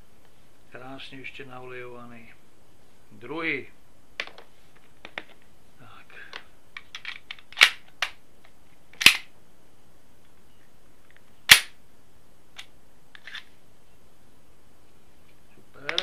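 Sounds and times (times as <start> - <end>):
pistol slide metallic clacks: 9.0 - 9.3.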